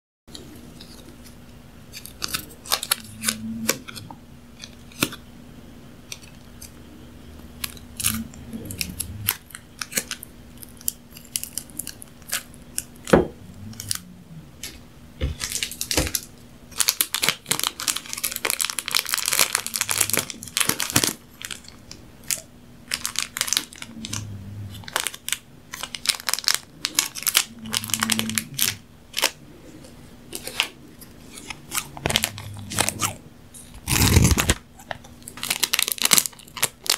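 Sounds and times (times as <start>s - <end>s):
plastic packet crinkling: 7.6s - 14.0s, 14.6s - 29.4s, 30.3s - 36.9s.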